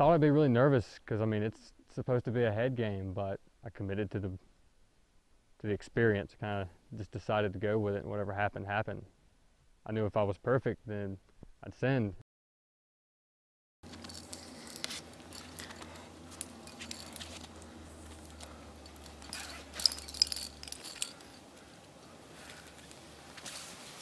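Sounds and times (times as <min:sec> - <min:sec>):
metal climbing gear clinking: 0:13.8 - 0:23.6
low steady hum: 0:13.8 - 0:24.0
rustling and small clicks: 0:13.8 - 0:24.0.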